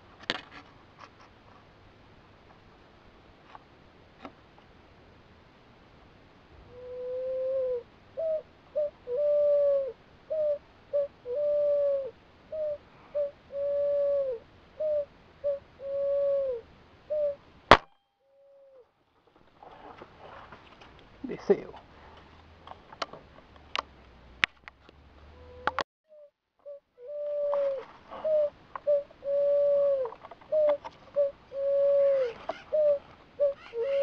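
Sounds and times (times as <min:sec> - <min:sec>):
pigeon cooing: 0:06.6 - 0:17.4, 0:18.4 - 0:18.9, 0:25.2 - 0:34.0
air rifle crack: 0:17.7 - 0:18.0.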